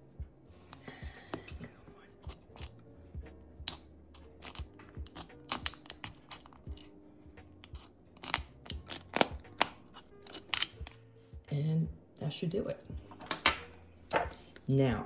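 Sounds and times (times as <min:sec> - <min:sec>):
knife blade scoring plastic: 0:03.6 - 0:06.9, 0:07.6 - 0:11.0.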